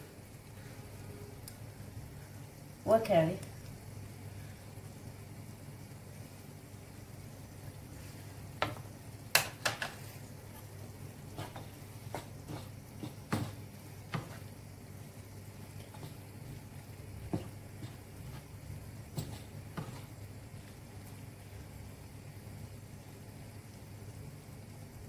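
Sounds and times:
steady low hum: 0.0 - 25.0
wooden spatula scraping a frying pan: 9.8 - 14.5, 15.7 - 20.7.

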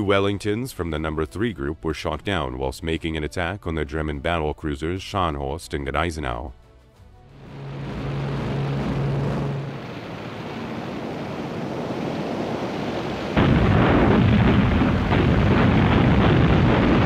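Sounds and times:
aircraft engine rumble: 7.2 - 13.2
machine-gun fire: 13.4 - 17.0.

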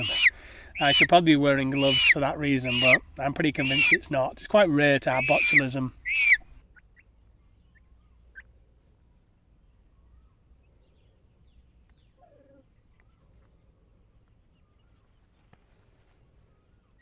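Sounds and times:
chickens chirping and peeping: 0.0 - 6.4.

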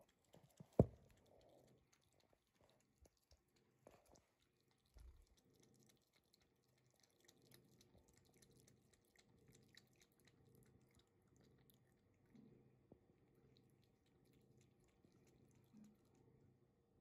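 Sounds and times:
cat lapping water: 0.0 - 16.8
quiet room hum: 0.0 - 17.0.

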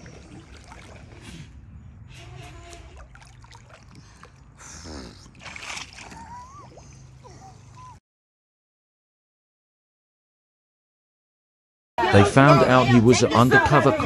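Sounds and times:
water splashing and sloshing: 0.0 - 7.9.

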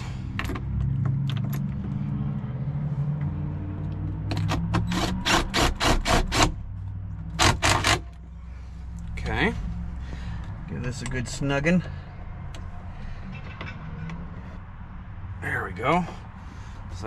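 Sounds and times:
driver short sharp bursts: 4.9 - 6.6.

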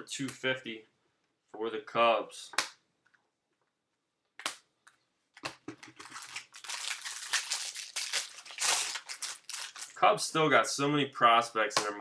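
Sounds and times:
foil wrapper crinkling: 5.8 - 10.0.

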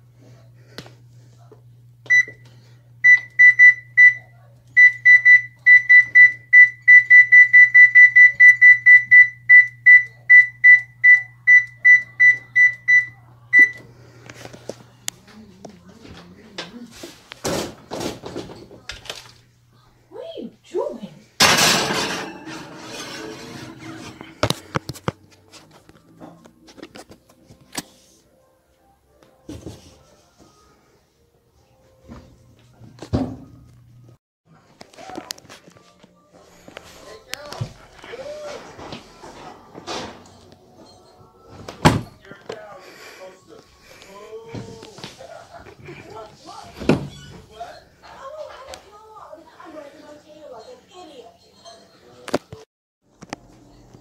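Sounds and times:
oven control panel beeps: 2.1 - 13.8.

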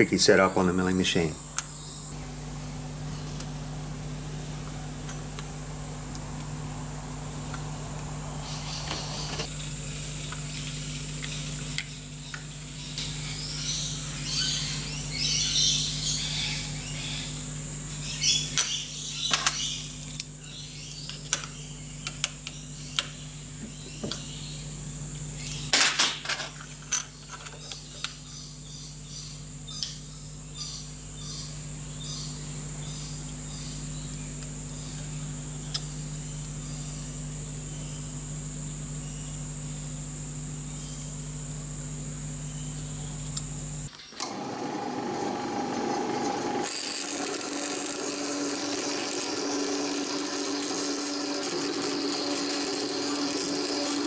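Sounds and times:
thin high whine: 0.0 - 20.0
steady low hum: 0.0 - 25.8, 26.4 - 54.0.

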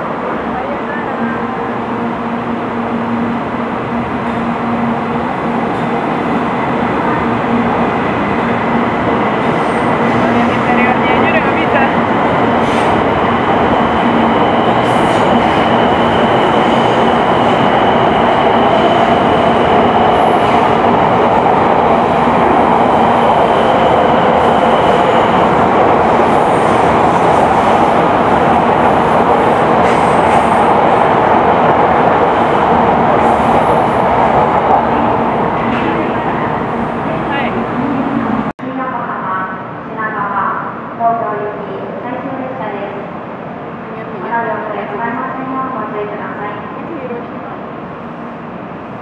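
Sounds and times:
train rushing and rumbling past: 0.0 - 38.5
high train whine: 0.0 - 49.0.

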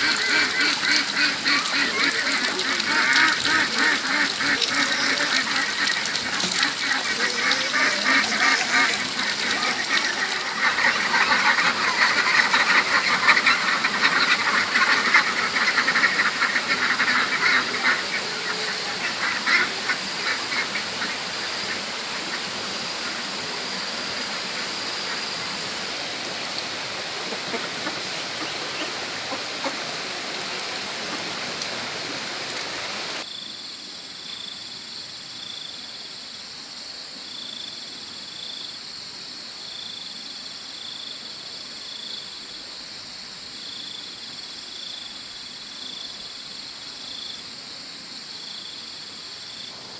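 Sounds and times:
ducks quacking: 0.0 - 23.3, 27.2 - 29.9
insects hissing: 0.0 - 49.9.

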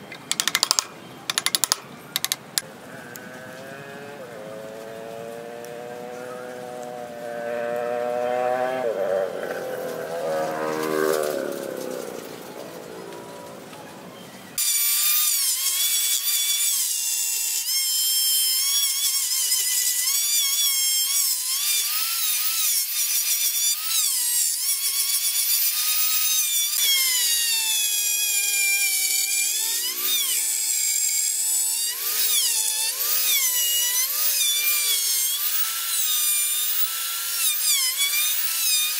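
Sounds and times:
rotary tool whining cutting wood: 0.0 - 2.7, 14.6 - 38.9.

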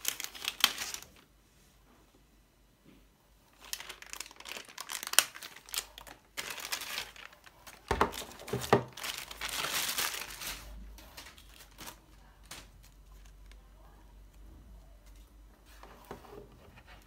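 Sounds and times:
plastic bag crinkling: 0.0 - 1.3, 3.5 - 13.7.

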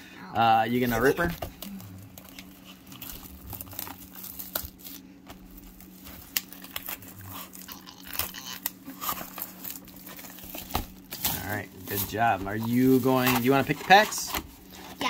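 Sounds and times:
plastic shrink-wrap tearing and crinkling: 0.7 - 15.0.

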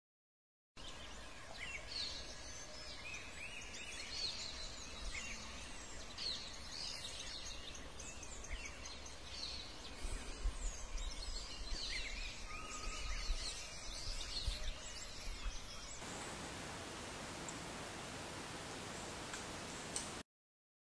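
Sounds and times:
forest background hiss: 0.8 - 20.2
birds chirping and whistling: 0.9 - 20.0.

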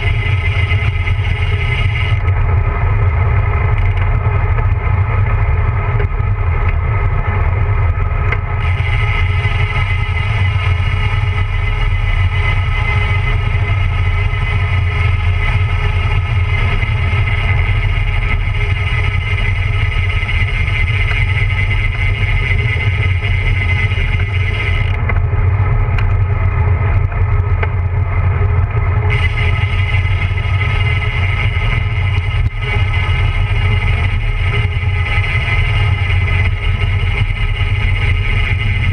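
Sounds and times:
thin high whine: 0.0 - 4.0, 8.5 - 25.2, 28.9 - 38.9
bicycle tyre rumble: 0.0 - 38.9
wind rushing over microphone: 0.0 - 38.9.

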